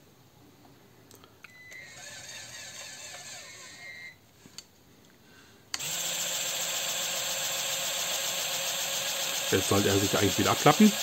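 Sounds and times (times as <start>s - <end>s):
small electric motor whining: 1.7s - 4.2s, 5.8s - 11.0s
loud motor whir: 1.8s - 4.0s, 5.8s - 11.0s.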